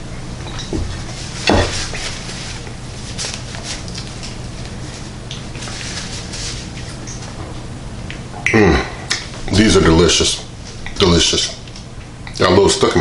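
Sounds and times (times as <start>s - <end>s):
steady low hum: 0.0s - 13.0s
wet mouth smacks: 8.1s - 9.3s.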